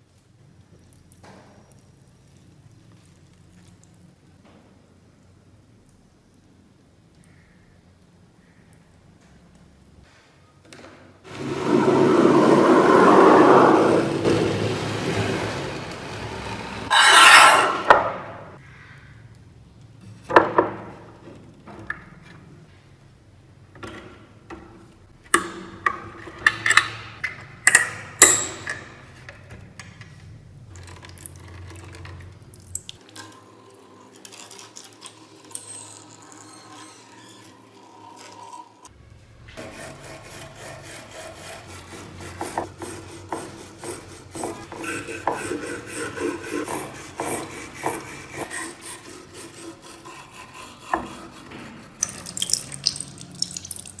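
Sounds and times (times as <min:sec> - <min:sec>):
scrubbing metal blades: 0:16.9 - 0:17.9, 0:39.7 - 0:54.0.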